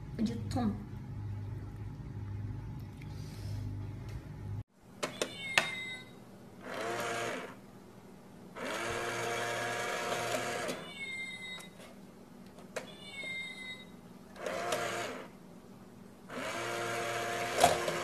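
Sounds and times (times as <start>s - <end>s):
small electric motor whirring: 6.6s - 7.6s, 8.6s - 10.8s, 14.4s - 15.3s, 16.3s - 18.0s.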